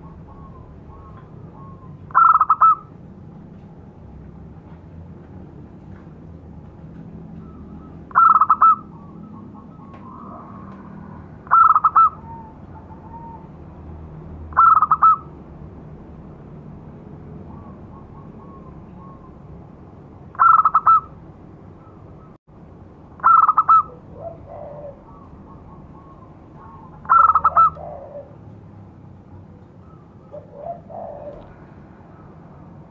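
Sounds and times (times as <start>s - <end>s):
dove cooing: 0.0s - 3.0s, 7.4s - 13.5s, 14.5s - 15.3s, 20.3s - 21.2s, 23.2s - 28.6s, 29.4s - 32.4s
faint dove cooing: 23.2s - 28.5s, 29.6s - 32.5s.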